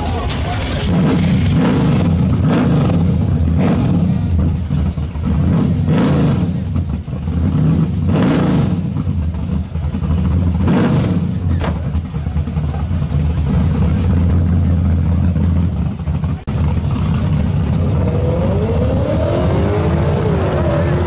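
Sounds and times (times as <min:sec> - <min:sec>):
car engine idling and revving: 0:00.0 - 0:21.0.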